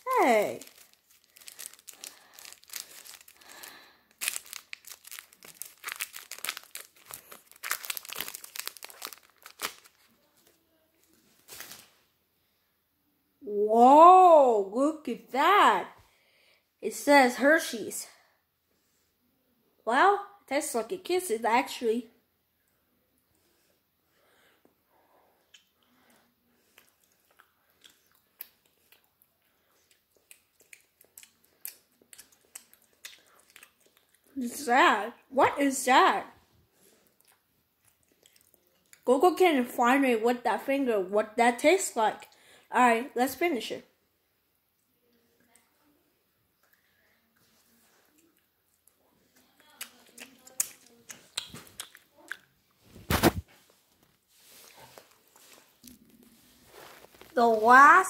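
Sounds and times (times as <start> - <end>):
wrapper crinkling: 0.0 - 12.0, 56.7 - 57.4
chewing chocolate: 0.1 - 10.5, 25.4 - 34.4, 37.0 - 39.1, 46.6 - 52.8
mouth clicks and lip smacks: 25.4 - 25.8, 26.7 - 34.3, 49.6 - 53.4.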